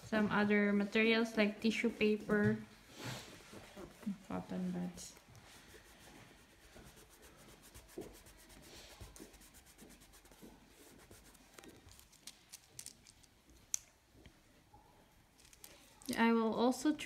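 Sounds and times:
fingertip rubbing on paper: 5.6 - 11.8.

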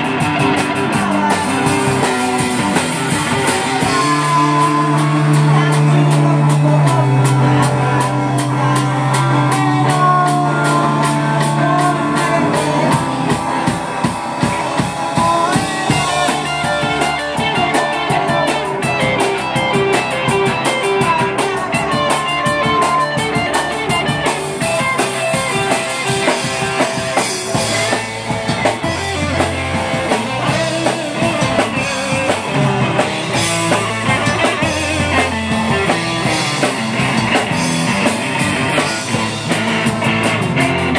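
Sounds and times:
drum kit with cymbal hits: 0.0 - 40.9
electric bass: 0.0 - 40.9
electric guitar: 0.0 - 40.9.

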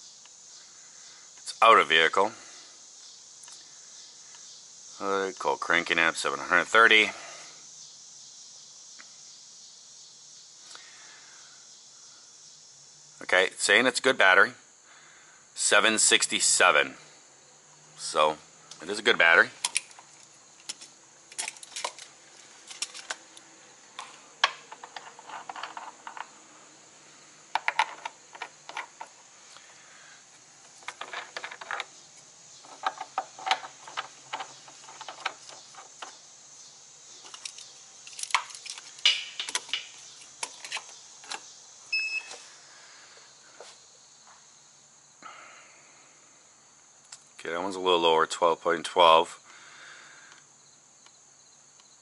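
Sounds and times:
metallic clinking of cables and clamps: 19.6 - 23.2, 37.3 - 41.4
electronic beep: 41.9 - 42.4.

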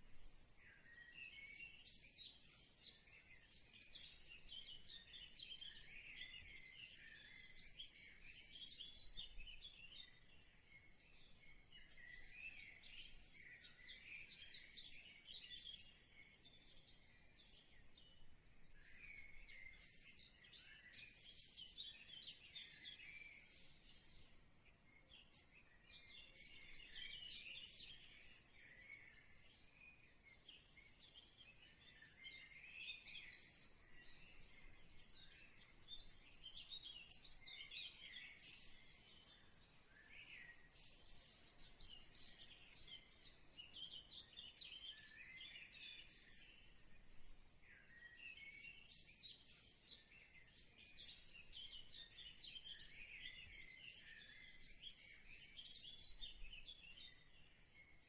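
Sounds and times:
small birds chirping: 0.0 - 58.0.

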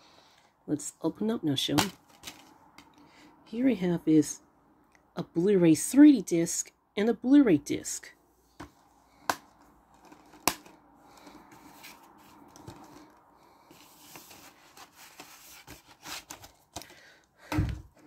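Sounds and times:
cardboard slipcover rustling: 8.5 - 17.0.

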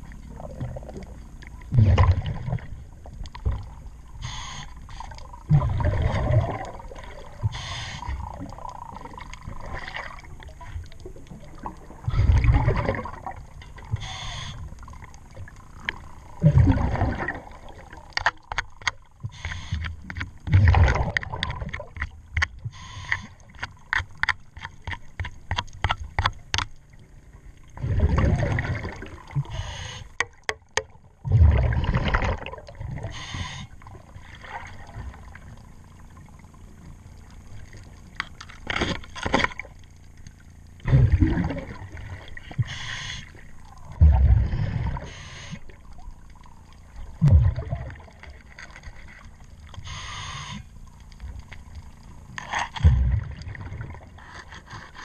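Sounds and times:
diver exhaling bubbles underwater: 0.3 - 2.8, 4.4 - 10.3, 11.4 - 15.1, 16.2 - 18.1, 20.5 - 21.8, 27.7 - 30.0, 31.2 - 35.4, 40.8 - 43.0, 43.9 - 45.9, 47.0 - 48.4, 52.8 - 54.2
scraping clicks underwater: 13.5 - 16.4, 17.9 - 27.5, 29.4 - 31.0, 35.5 - 40.9, 42.2 - 44.2, 44.9 - 53.5, 54.1 - 55.0.

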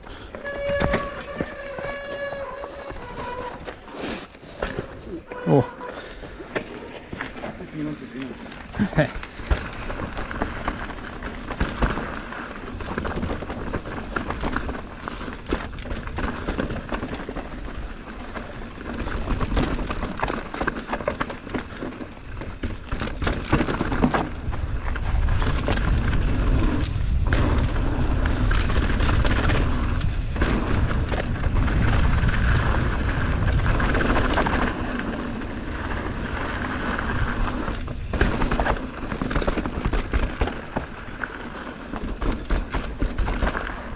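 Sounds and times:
bike rattling and knocking: 0.0 - 43.9
bike tyres on dirt: 0.0 - 43.9.

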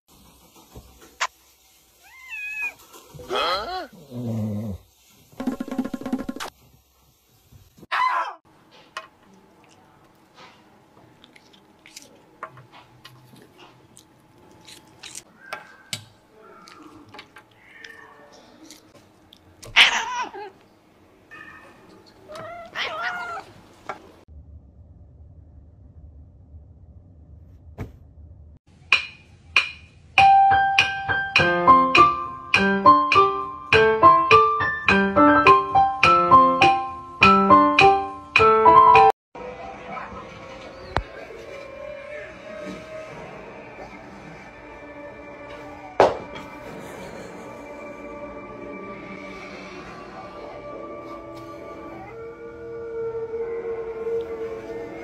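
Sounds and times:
lively piano tune: 30.2 - 39.1.

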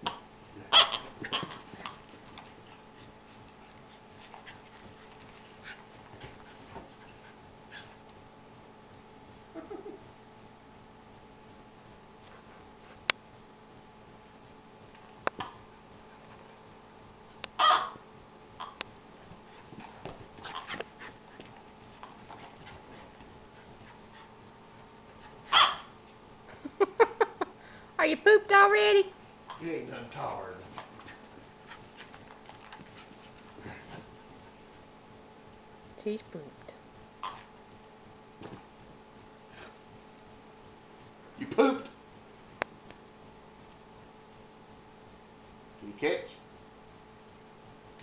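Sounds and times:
dog barking: 17.6 - 18.0, 25.5 - 25.9.

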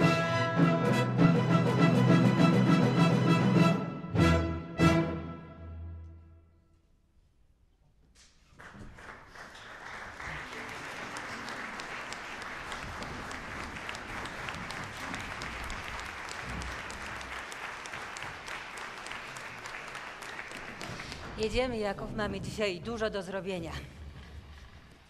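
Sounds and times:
audience applauding: 8.4 - 21.9.

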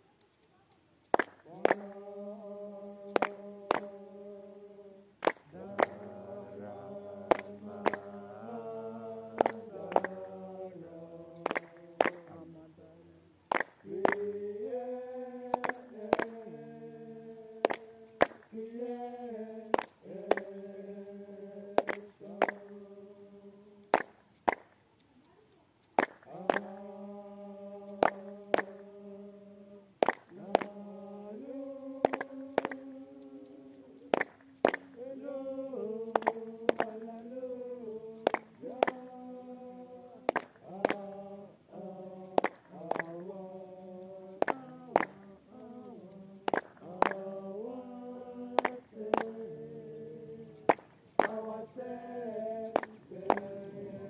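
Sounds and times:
voices chanting: 1.4 - 24.0, 26.2 - 54.0.

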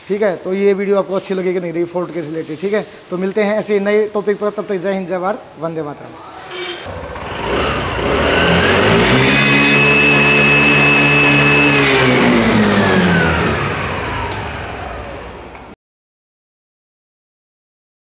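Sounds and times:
scooter engine revving: 6.2 - 15.7.

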